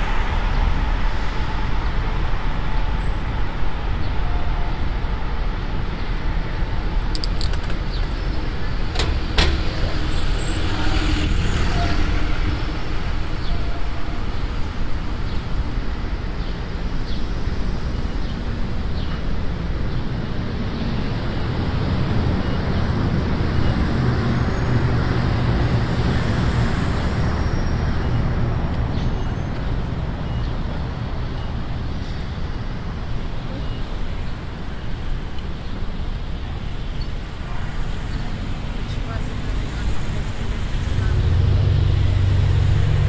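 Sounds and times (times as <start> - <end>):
traffic engine and tyre rumble: 0.0 - 43.0
low engine hum: 38.9 - 43.0.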